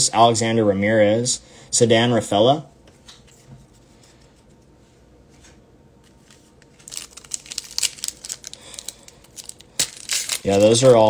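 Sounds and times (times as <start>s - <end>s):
trading cards handled: 5.4s - 11.0s
foil wrapper crinkling: 6.1s - 11.0s.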